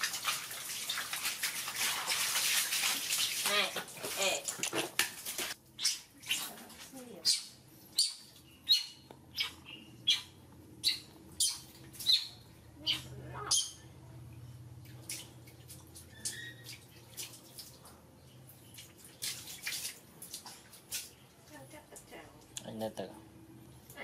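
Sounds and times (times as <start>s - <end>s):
low steady hum: 0.0s - 24.0s
baby monkey squeaking: 5.8s - 6.5s, 7.2s - 13.9s.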